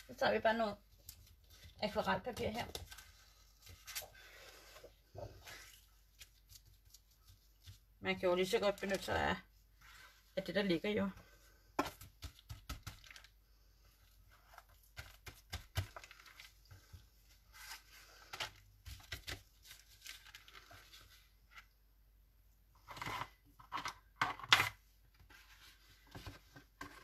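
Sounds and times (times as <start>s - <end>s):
paper rustling and crinkling: 0.9s - 7.9s, 14.0s - 21.7s.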